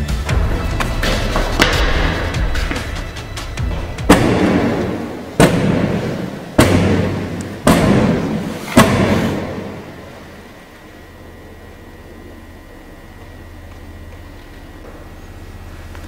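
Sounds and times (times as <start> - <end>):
heavy echoing thuds: 0.3 - 10.4.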